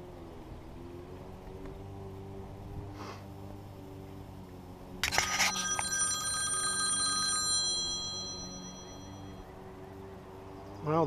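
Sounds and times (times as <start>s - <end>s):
phone bell-like chime: 5.0s - 9.4s.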